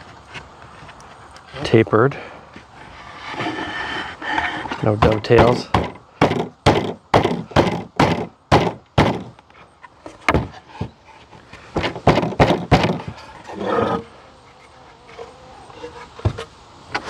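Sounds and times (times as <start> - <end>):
wooden boards knocking: 5.0 - 9.4, 10.2 - 11.0, 11.7 - 13.2.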